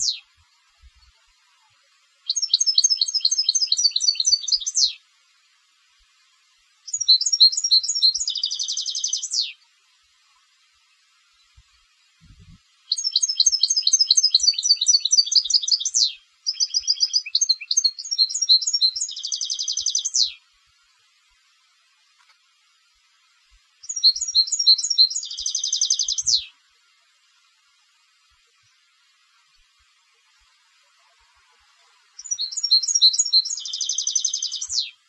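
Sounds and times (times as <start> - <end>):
goldfinch twittering song: 0.0 - 1.3, 2.2 - 5.0, 6.8 - 9.7, 12.9 - 20.4, 23.8 - 26.6, 32.2 - 35.0.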